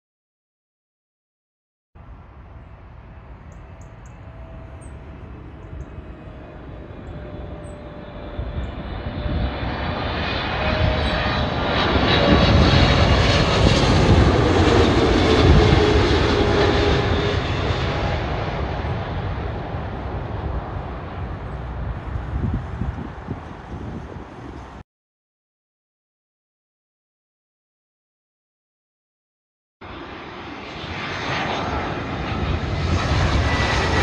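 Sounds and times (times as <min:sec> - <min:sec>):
jet airliner passing overhead: 0:02.0 - 0:24.8, 0:29.8 - 0:34.0
jet engine whine: 0:02.0 - 0:24.8, 0:29.8 - 0:34.0.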